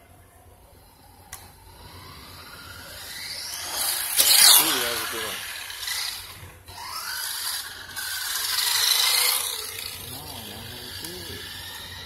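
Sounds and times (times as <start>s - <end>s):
electric motor whine: 0.7s - 12.0s.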